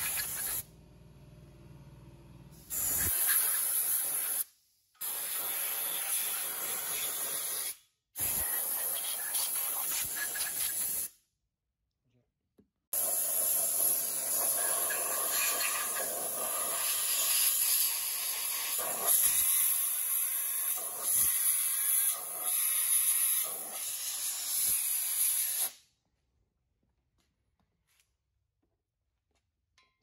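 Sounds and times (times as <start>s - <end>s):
compressed air blow gun hissing: 2.6s - 11.1s, 13.0s - 25.8s.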